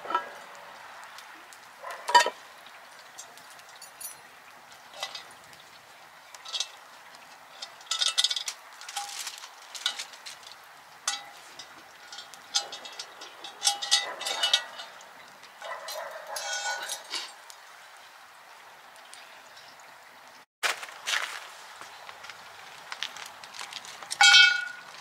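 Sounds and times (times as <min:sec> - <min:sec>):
utensil scraping a metal pot: 0:06.4 - 0:09.2, 0:09.8 - 0:15.0, 0:16.2 - 0:17.4.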